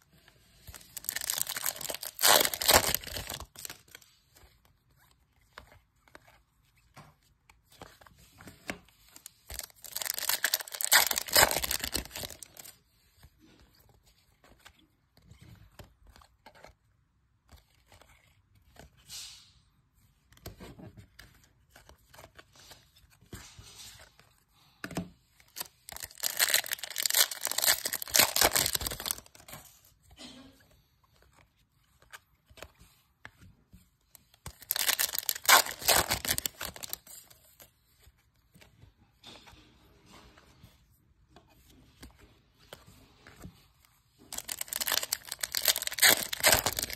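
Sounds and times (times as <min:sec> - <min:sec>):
cards rustling and shuffling: 0:00.1 - 0:16.8, 0:17.4 - 0:19.1, 0:20.0 - 0:30.1, 0:30.7 - 0:46.9
card wrappers crinkling and tearing: 0:00.5 - 0:04.0, 0:09.2 - 0:12.8, 0:25.4 - 0:29.5, 0:34.2 - 0:37.6, 0:44.2 - 0:46.9.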